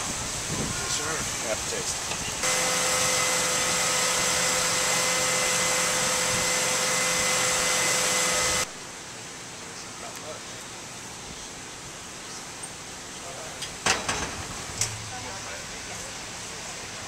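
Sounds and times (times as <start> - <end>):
fan motor running with whine: 2.2 - 8.8.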